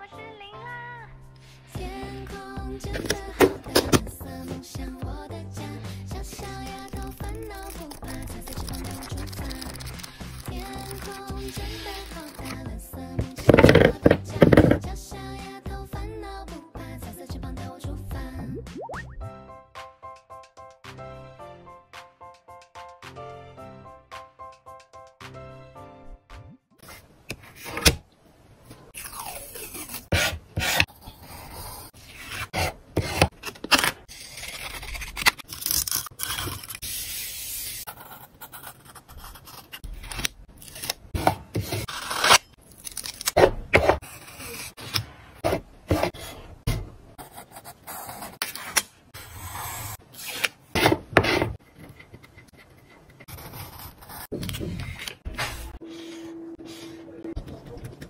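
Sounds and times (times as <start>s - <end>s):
paper rustling and rubbing: 7.5s - 12.6s.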